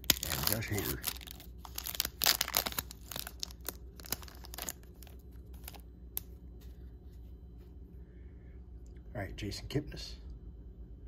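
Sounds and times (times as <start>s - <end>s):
plastic wrapper tearing and crinkling: 0.0s - 6.3s.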